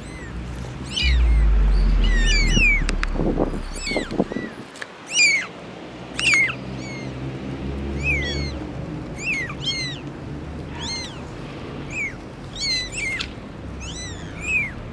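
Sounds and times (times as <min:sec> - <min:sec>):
faint low hum: 0:01.0 - 0:04.6.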